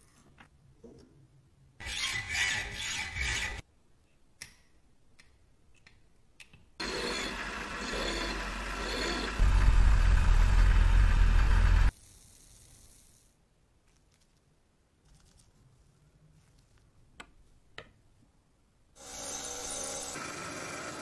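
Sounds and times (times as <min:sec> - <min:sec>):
sawing threaded rod: 0:06.8 - 0:09.5
steel bar on grinding wheel: 0:06.8 - 0:09.6
grinder motor hum: 0:06.8 - 0:11.9.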